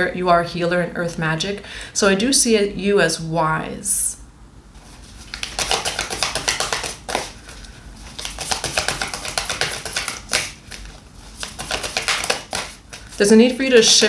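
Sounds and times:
cards being shuffled: 4.8s - 14.0s.

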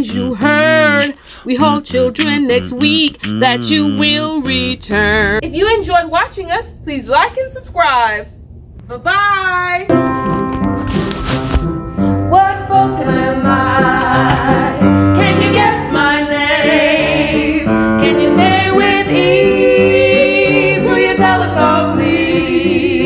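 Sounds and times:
music with person singing: 12.0s - 16.1s.

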